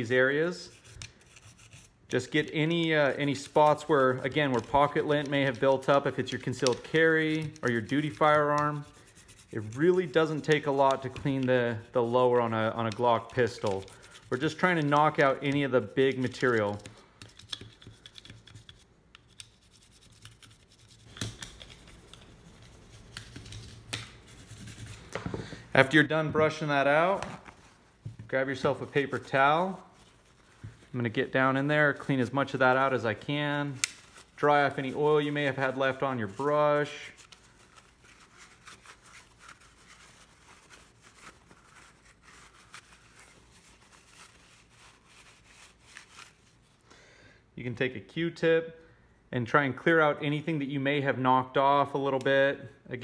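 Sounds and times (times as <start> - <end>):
brush scrubbing scratchy scrapes: 0.6 - 2.0, 3.1 - 15.3, 16.1 - 25.1, 26.9 - 46.4
paper towel rustling and scrunching: 25.8 - 46.8.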